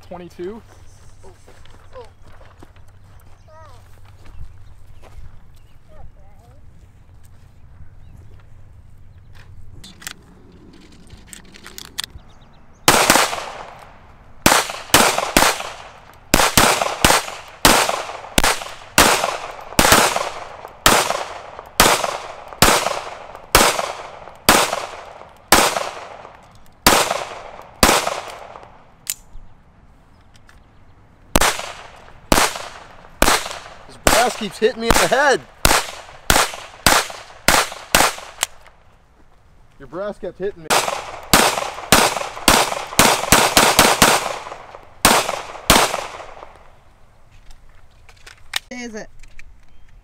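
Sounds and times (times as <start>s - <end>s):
pistol shots: 12.8s - 28.8s, 31.3s - 38.6s, 40.6s - 46.7s.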